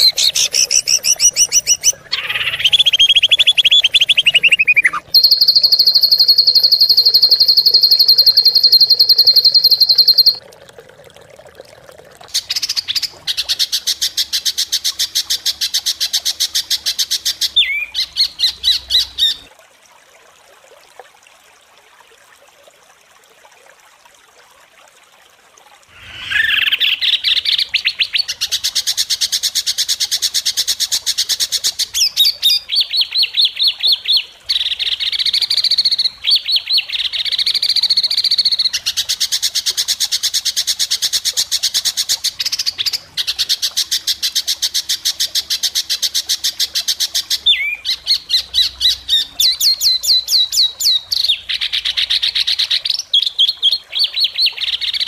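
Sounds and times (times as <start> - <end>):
songbirds trilling and chattering: 0.0 - 7.4, 26.0 - 27.9.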